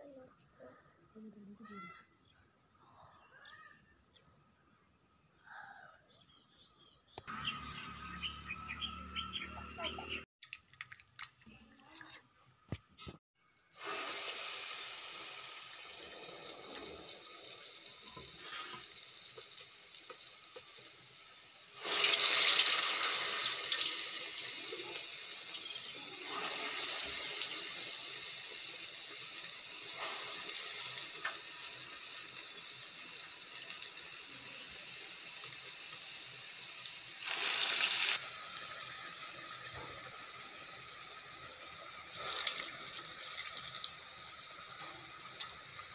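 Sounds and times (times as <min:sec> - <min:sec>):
deep-frying sizzle in oil: 0:13.1 - 0:45.9.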